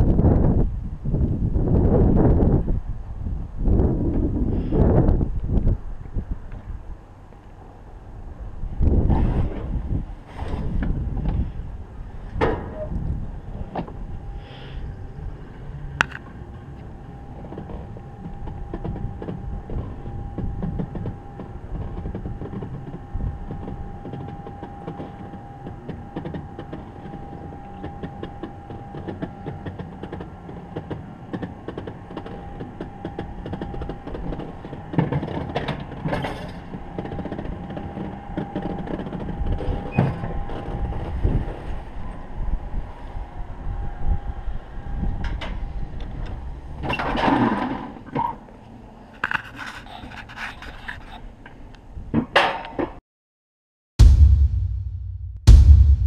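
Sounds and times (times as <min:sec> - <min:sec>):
coaster sled rumbling on rails: 0:00.0 - 0:52.4
steady whine: 0:54.0 - 0:56.0.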